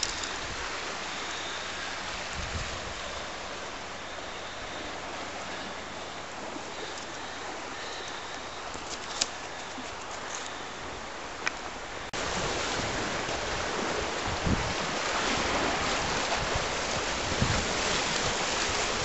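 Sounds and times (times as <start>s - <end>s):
sea surf: 0.0s - 19.0s
wind gust on microphone: 2.0s - 3.6s, 12.2s - 19.0s.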